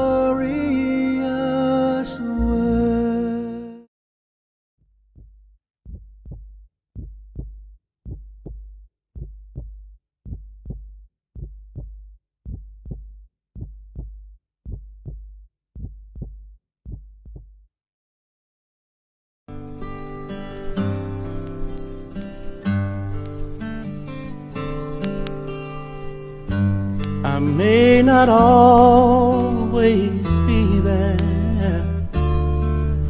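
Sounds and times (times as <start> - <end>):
heartbeat thumps: 5.1 - 17.6.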